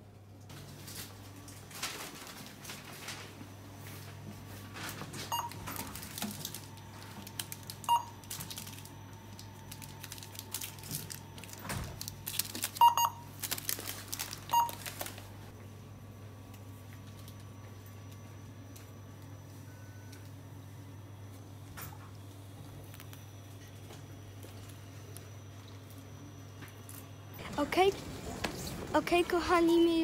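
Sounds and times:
steady low hum: 0.0 - 30.0
products rustling: 0.6 - 15.5
scanner beeping: 5.3 - 5.9, 7.8 - 8.3, 12.8 - 13.3, 14.5 - 15.0.

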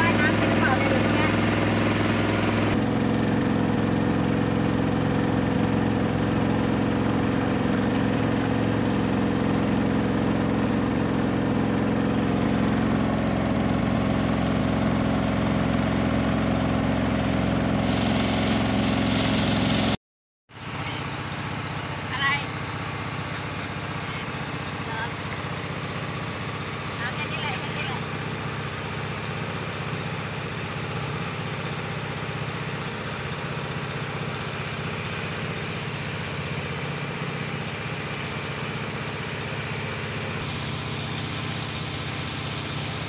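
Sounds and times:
motorboat engine running: 0.0 - 43.0
brief hiss: 17.8 - 20.0.

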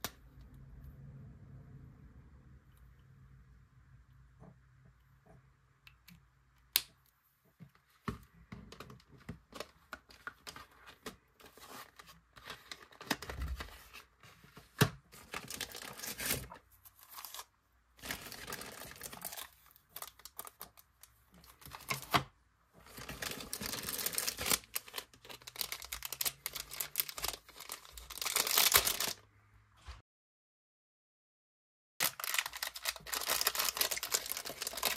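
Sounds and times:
plastic packaging crinkling: 15.2 - 20.8, 22.8 - 29.2, 32.0 - 34.9.

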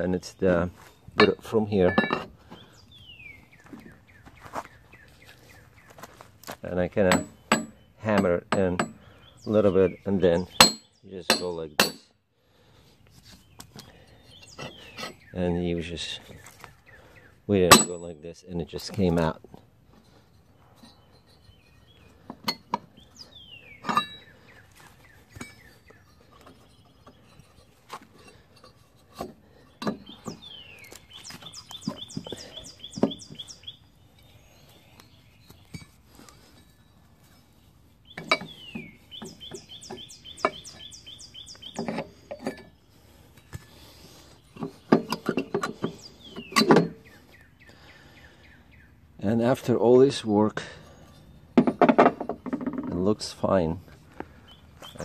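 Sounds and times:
bird singing trills: 0.0 - 6.2, 6.8 - 12.2, 13.0 - 51.6, 52.4 - 55.0
metal clinks and knocks: 1.1 - 2.4, 7.0 - 9.0, 17.7 - 18.2, 20.0 - 23.0, 23.8 - 24.4, 25.3 - 33.4, 35.4 - 37.6, 41.7 - 42.8, 44.5 - 47.1.

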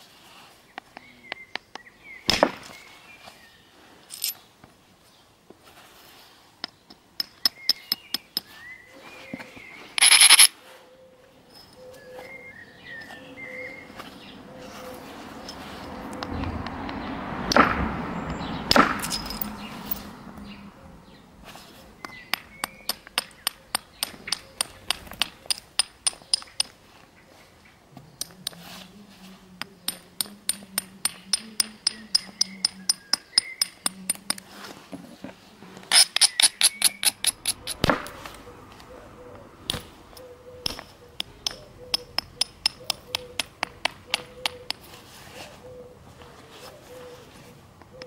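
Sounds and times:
heavy blows on flint: 21.2 - 26.8.

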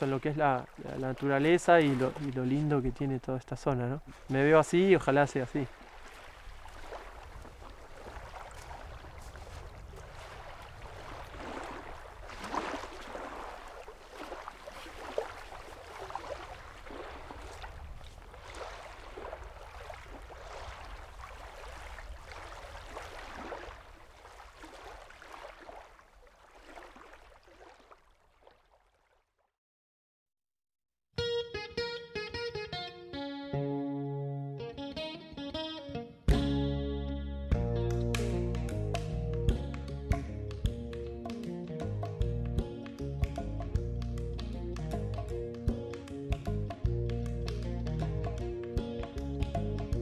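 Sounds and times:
small waves lapping on shore: 0.0 - 29.4.

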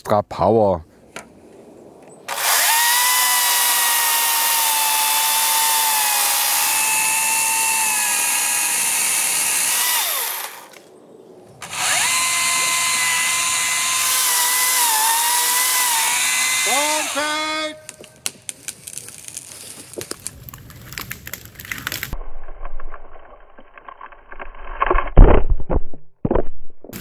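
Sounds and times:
electric chainsaw cutting wood: 2.3 - 10.8, 11.6 - 17.4.

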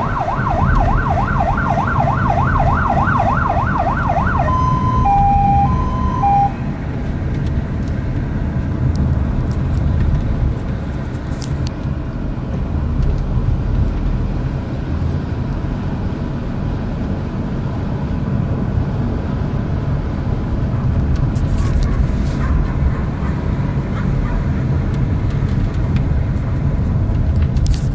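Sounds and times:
two-tone siren: 0.0 - 6.7
vehicle engine and road noise: 0.0 - 27.9.

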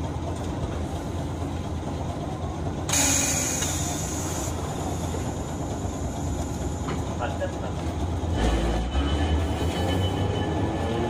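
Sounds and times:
tram rumbling: 0.0 - 11.0
hiss of released air: 2.9 - 4.6.

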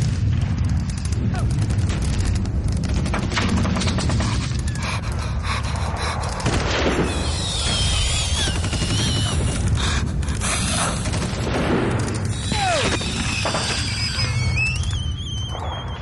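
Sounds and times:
distant gunfire and explosions: 0.0 - 16.0
falling whistle: 12.5 - 16.0
high wavering whistles: 12.5 - 16.0.

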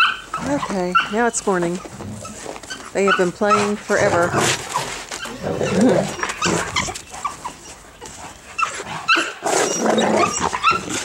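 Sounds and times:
dogs growling: 0.0 - 11.0
dogs whining and yipping: 0.0 - 11.0.

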